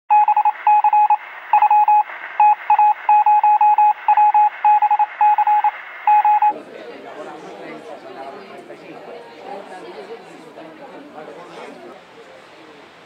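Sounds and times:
morse code beeping: 0.1s - 6.5s.

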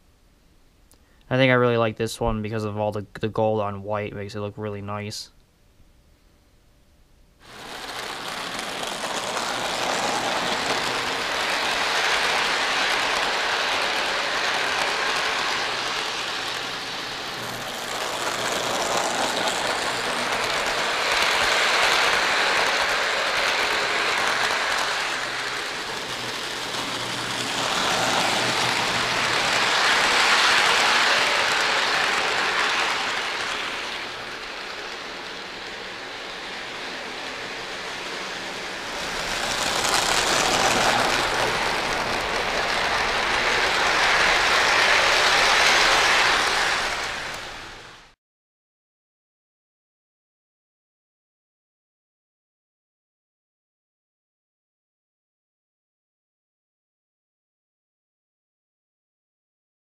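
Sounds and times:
model train wheels clattering: 7.4s - 47.9s.

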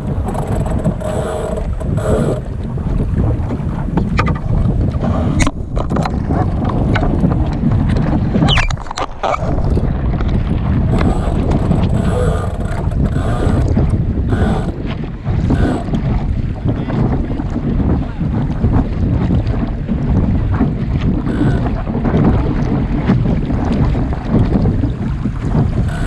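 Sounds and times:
wind buffeting microphone: 0.0s - 26.0s.

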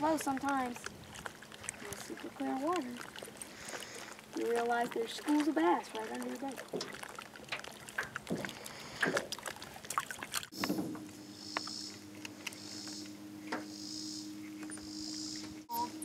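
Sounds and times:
water lapping against boat: 0.0s - 16.0s
steady low hum: 10.4s - 16.0s.

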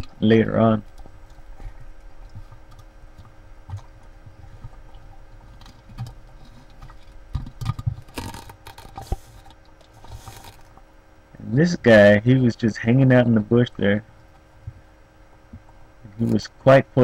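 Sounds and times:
low rumble of moving water: 0.0s - 17.0s
underwater clicks and knocks: 0.8s - 10.9s
rustling through branches: 8.2s - 10.8s.

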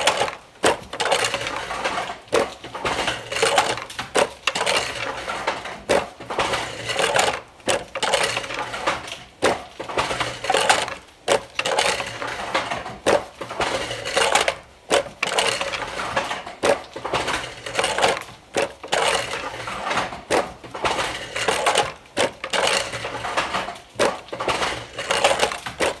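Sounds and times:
wooden loom clacking: 0.0s - 26.0s.

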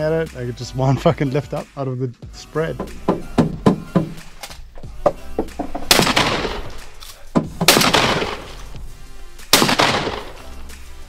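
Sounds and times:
shotgun shots: 5.7s - 8.8s, 9.5s - 10.6s.

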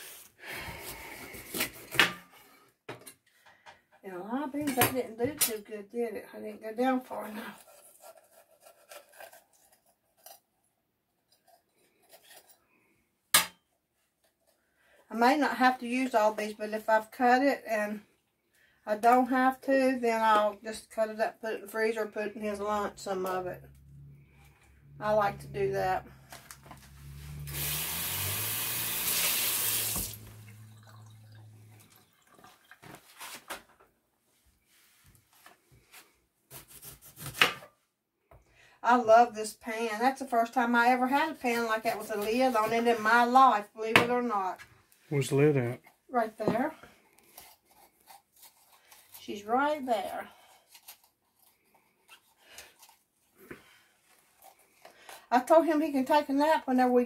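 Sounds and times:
kitchen faucet running into sink: 27.5s - 32.8s
knife cutting peppers on board: 36.5s - 37.7s.

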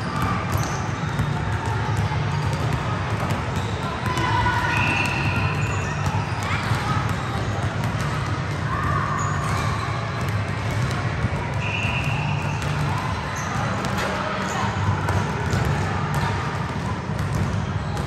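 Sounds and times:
basketballs bouncing on gym floor: 0.0s - 18.0s
players' voices: 0.0s - 18.0s
shoe squeaks: 3.5s - 3.9s, 4.6s - 7.5s.

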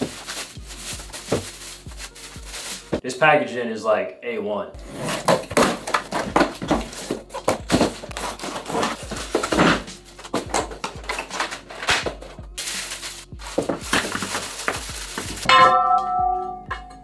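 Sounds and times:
cardboard packaging rustling: 0.0s - 3.0s, 4.8s - 15.5s
plastic bags crinkling: 0.0s - 3.0s, 5.4s - 15.5s.

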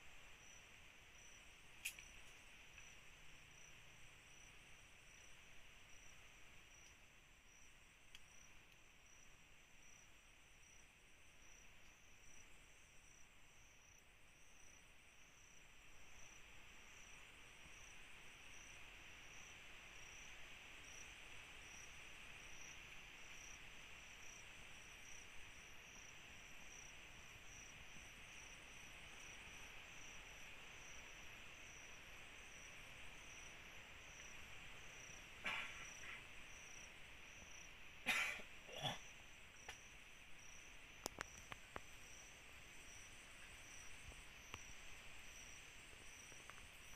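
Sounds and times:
pulsing high insect chirp: 0.0s - 46.9s
crickets hissing: 27.5s - 46.9s.

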